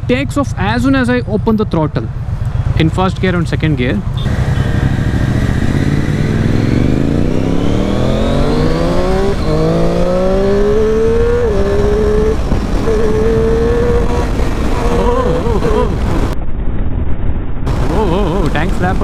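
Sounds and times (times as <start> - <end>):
wind rushing at microphone: 2.1 - 19.0
motorcycle engine accelerating: 4.1 - 16.4, 17.7 - 19.0.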